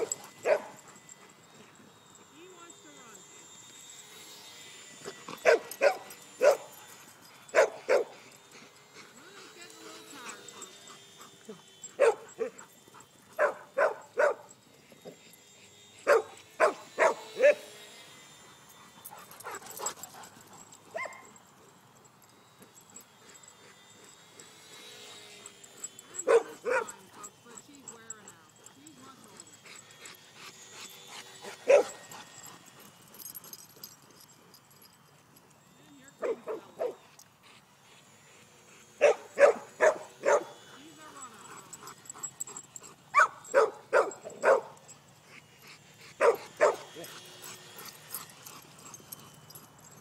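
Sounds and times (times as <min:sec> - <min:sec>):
dog barking: 0:00.0 - 0:00.7, 0:07.6 - 0:08.1, 0:12.0 - 0:12.6, 0:13.4 - 0:14.4, 0:16.1 - 0:17.6, 0:26.2 - 0:26.9, 0:31.7 - 0:32.0, 0:39.0 - 0:40.5, 0:43.1 - 0:44.8, 0:46.2 - 0:47.0
dogs barking: 0:00.0 - 0:00.8, 0:05.4 - 0:06.8, 0:07.5 - 0:08.2, 0:10.5 - 0:14.5, 0:16.0 - 0:17.7, 0:20.9 - 0:21.4, 0:26.2 - 0:27.4, 0:31.3 - 0:32.4, 0:39.0 - 0:44.9, 0:46.1 - 0:49.6.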